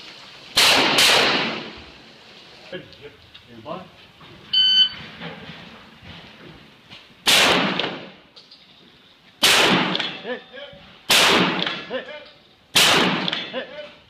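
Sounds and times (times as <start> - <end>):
shotgun blasts with echo: 0.6 - 1.8, 7.2 - 8.2, 9.4 - 10.2, 11.1 - 11.9, 12.7 - 13.6
electronic timer beep: 4.5 - 5.0.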